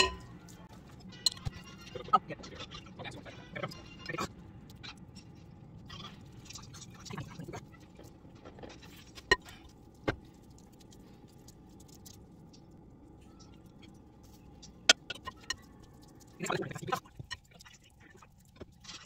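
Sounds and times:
faint steady hum: 0.0s - 19.0s
spatula clatter: 13.4s - 19.0s.

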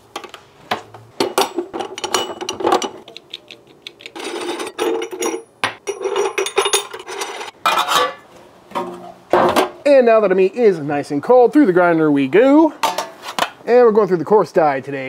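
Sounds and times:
metal parts scraping: 3.9s - 8.2s.

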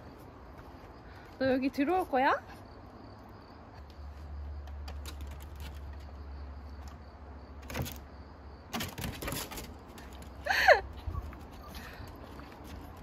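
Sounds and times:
dog claws on wooden deck: 4.6s - 7.0s, 7.6s - 8.1s, 8.7s - 10.4s.

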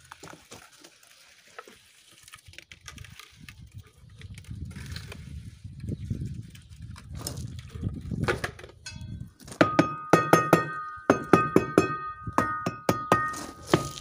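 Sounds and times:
low scraping and shuffling: 0.0s - 9.6s
sharp metallic knocks: 8.8s - 14.0s.

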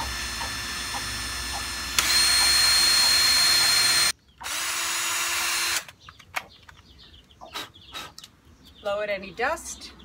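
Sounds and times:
drill boring into brick: 0.0s - 5.9s.

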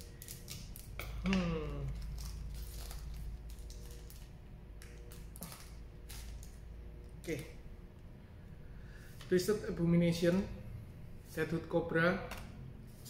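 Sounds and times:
scissors cutting foil: 0.0s - 6.5s
foil wrapper crinkling: 1.9s - 4.3s.

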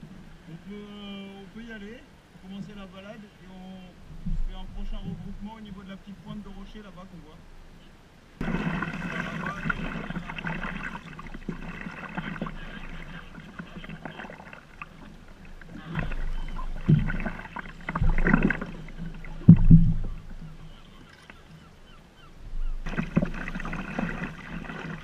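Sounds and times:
water splashing around kayak: 8.4s - 25.0s.

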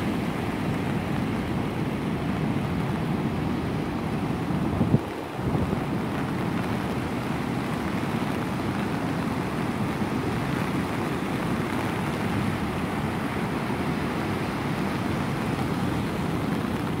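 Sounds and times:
heavy surf breaking on shore: 0.0s - 17.0s.

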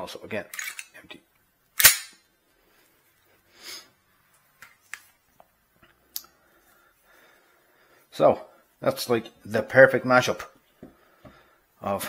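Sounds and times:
pistol handling clicks: 1.8s - 2.2s
pistol slide snapping forward: 1.8s - 2.2s
soft breath: 6.2s - 8.8s, 10.8s - 11.8s.

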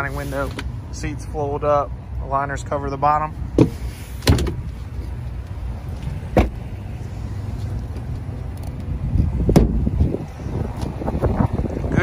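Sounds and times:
steady low rumble: 0.0s - 12.0s
truck door thumping shut: 3.6s - 4.7s, 6.3s - 6.6s, 9.5s - 9.9s.

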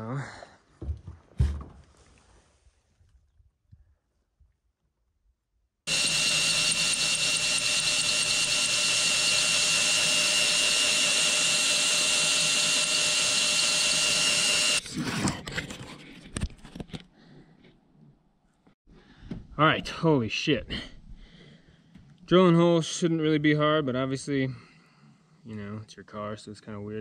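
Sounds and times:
power drill boring through metal: 5.9s - 14.8s.

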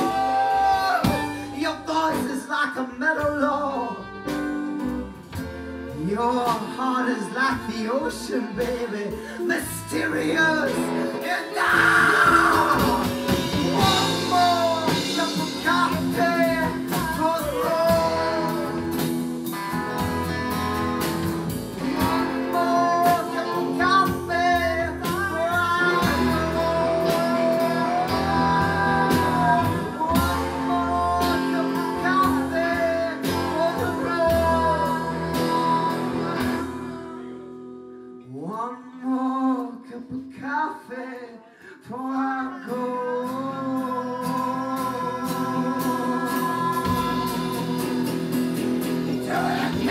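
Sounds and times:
person singing: 0.0s - 4.4s, 5.9s - 20.9s, 21.7s - 37.6s, 38.2s - 49.9s
bass line: 0.0s - 37.8s, 43.4s - 49.9s
strummed acoustic guitar: 43.4s - 49.9s.

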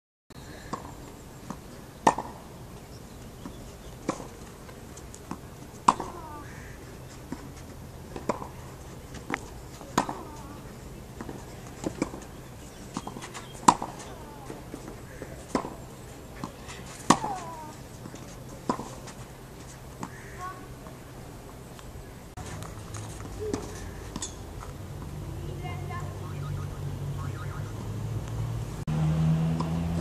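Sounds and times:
tennis ball bouncing: 0.7s - 2.4s, 3.4s - 15.8s, 16.4s - 19.2s
racket hitting tennis ball: 1.5s - 2.4s, 5.3s - 6.6s, 7.3s - 8.6s, 9.2s - 12.3s, 12.9s - 15.8s, 16.4s - 19.2s.

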